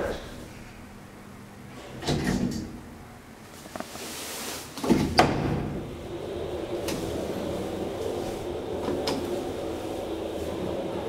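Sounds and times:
elevator doors clunking: 1.7s - 3.0s, 4.8s - 11.0s.

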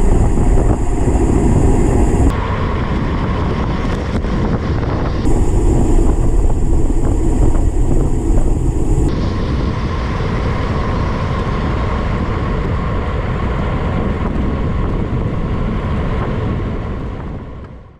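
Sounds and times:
high hiss: 0.0s - 2.8s, 4.4s - 12.2s
wind rushing over microphone: 0.0s - 17.9s
tyre noise on asphalt: 3.1s - 9.4s.

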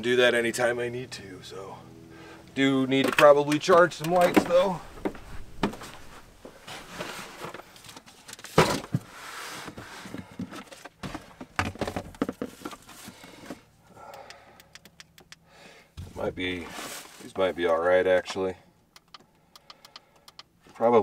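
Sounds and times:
plastic bins being rummaged: 3.0s - 13.6s.

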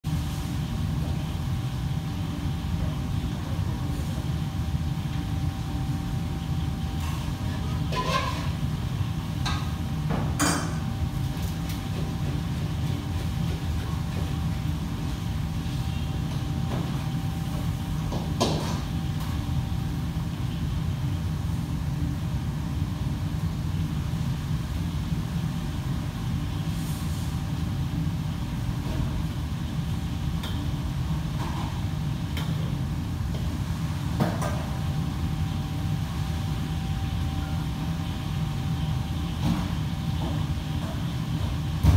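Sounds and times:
faint steady whine: 8.5s - 41.9s.

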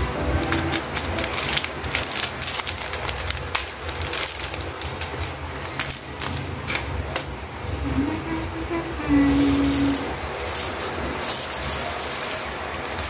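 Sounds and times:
steady low hum: 0.0s - 13.0s
plastic bag crinkling: 0.4s - 6.5s, 9.3s - 13.0s.

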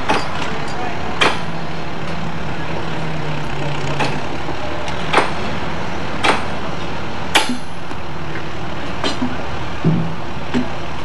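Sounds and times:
sharp metallic clanks: 0.0s - 2.2s
diesel engine running: 0.0s - 11.0s.

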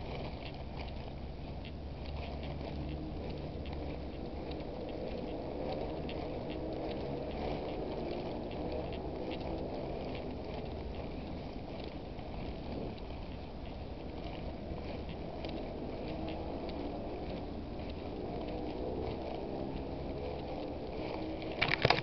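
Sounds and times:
wind on microphone: 0.0s - 22.0s
camera handling noise: 21.6s - 22.0s.

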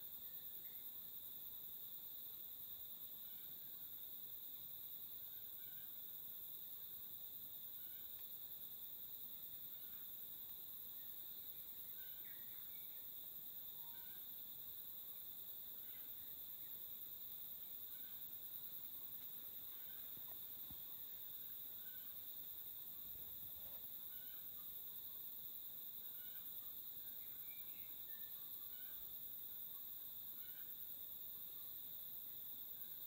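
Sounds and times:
insect chorus droning: 0.0s - 33.0s
faint bird chirps: 10.9s - 14.3s, 26.0s - 30.8s.

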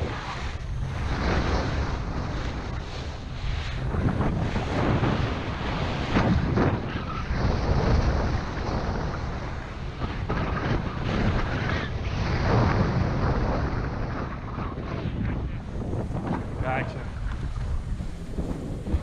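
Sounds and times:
wind rumbling on microphone: 0.0s - 19.0s
skis scraping on snow: 15.7s - 19.0s.

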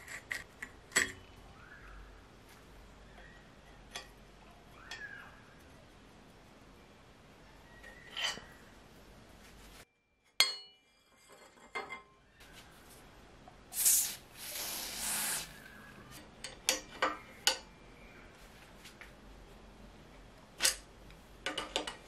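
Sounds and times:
aerosol spray hissing: 13.7s - 15.6s.

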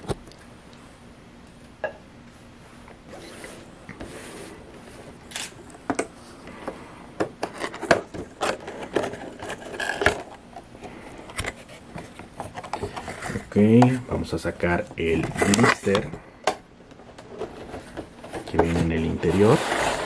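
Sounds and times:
cardboard box scraping and rubbing: 18.7s - 20.0s.

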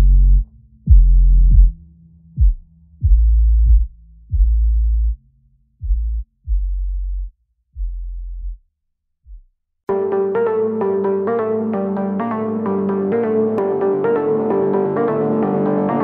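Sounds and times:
deep bass notes: 0.0s - 8.6s.

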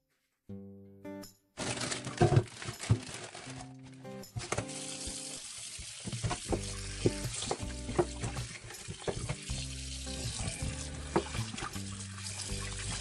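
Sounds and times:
background music: 0.5s - 13.0s
tap water splashing into steel bowl: 4.4s - 13.0s.

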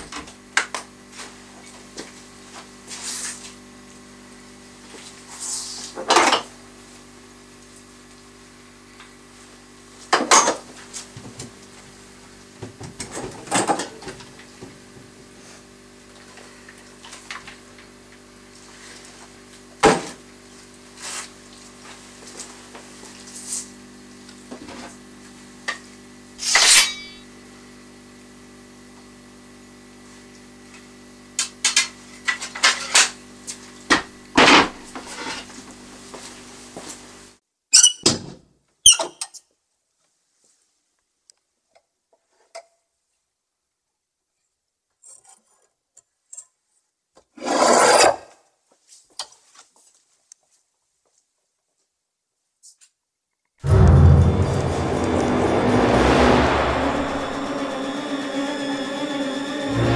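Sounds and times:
steady low hum: 53.6s - 59.9s.

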